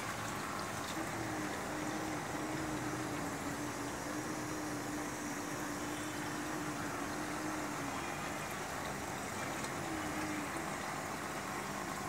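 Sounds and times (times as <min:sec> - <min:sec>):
low steady hum: 0:00.0 - 0:12.0
water hissing through pipes: 0:00.0 - 0:12.0.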